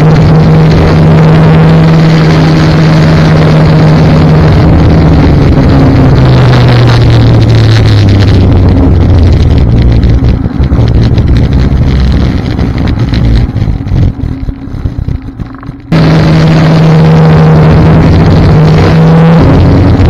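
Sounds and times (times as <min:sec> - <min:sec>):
snowmobile engine running: 0:00.0 - 0:20.0
wind on microphone: 0:00.0 - 0:20.0.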